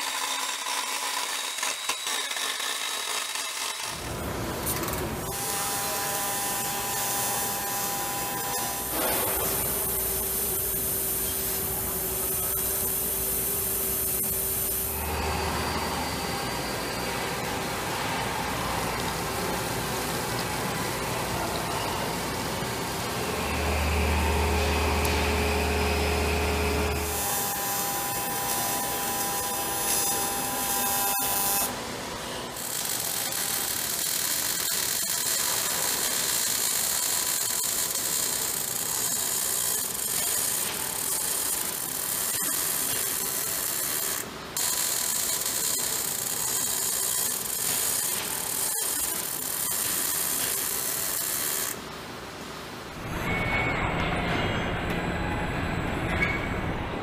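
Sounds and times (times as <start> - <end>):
welding arc hiss and crackle: 0.0 - 17.8, 22.3 - 31.8, 32.5 - 52.4
machine low hum: 5.3 - 30.7.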